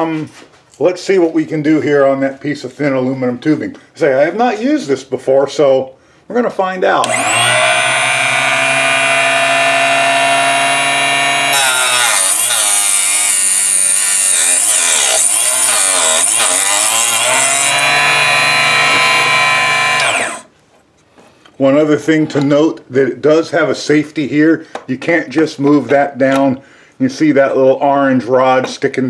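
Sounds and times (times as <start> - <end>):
chop saw whining: 7.0 - 20.5
saw blade cutting aluminum tubing: 7.0 - 20.5.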